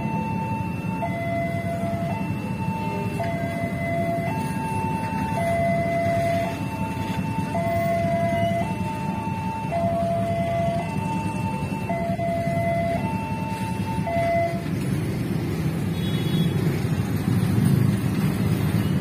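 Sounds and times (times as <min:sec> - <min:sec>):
two-tone crossing alarm: 0:00.0 - 0:14.9.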